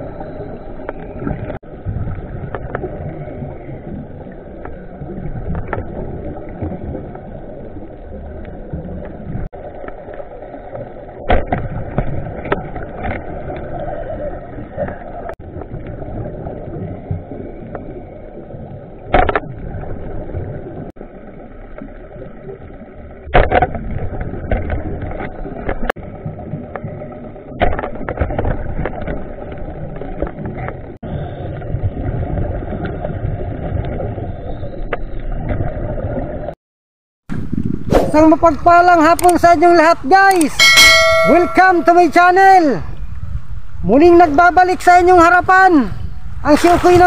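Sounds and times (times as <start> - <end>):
muffled underwater rumble: 0.0 - 36.6.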